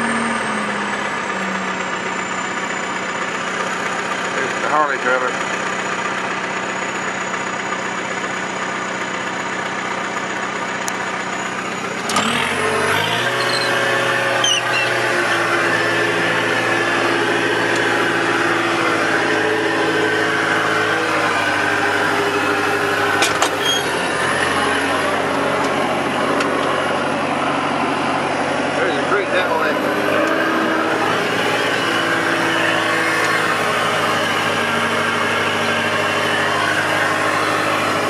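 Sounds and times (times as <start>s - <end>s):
machine engine revving up: 11.8s - 38.0s.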